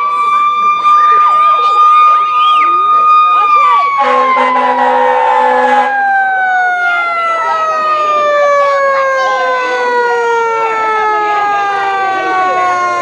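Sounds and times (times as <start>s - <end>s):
fire engine siren winding down: 0.0s - 13.0s
steady horn blast: 4.0s - 6.0s.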